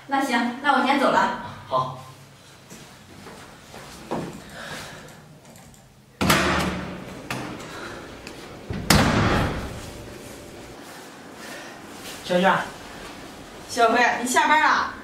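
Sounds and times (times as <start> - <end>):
door shutting thud: 6.2 - 7.6, 8.7 - 9.8
door opening clunk: 8.7 - 9.8.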